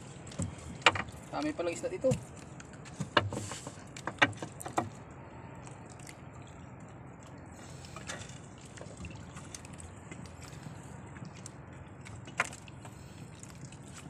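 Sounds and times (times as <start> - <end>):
net and fish knocking on hull: 2.0 - 4.9.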